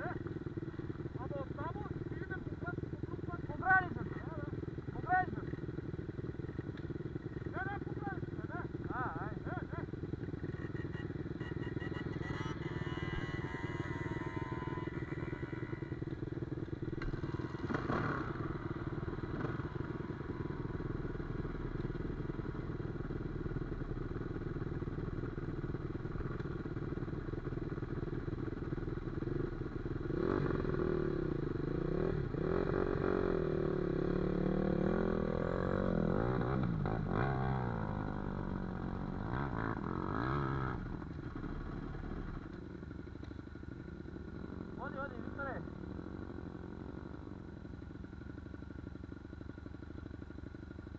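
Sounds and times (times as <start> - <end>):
dirt bike engines idling: 0.0 - 50.9
engine revving: 10.7 - 22.5, 30.0 - 42.3.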